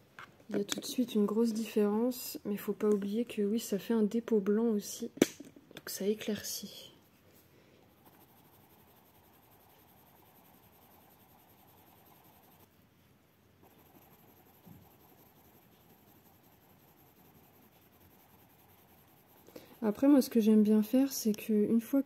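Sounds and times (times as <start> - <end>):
pencil scratching on paper: 7.9 - 12.7, 13.6 - 21.1.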